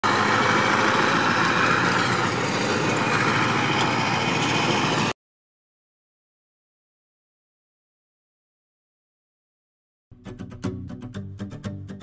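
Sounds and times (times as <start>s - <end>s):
engine idling: 0.0s - 5.1s.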